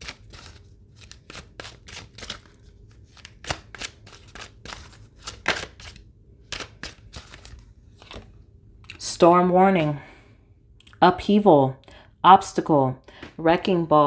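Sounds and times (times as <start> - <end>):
cards being shuffled: 0.0 - 8.3.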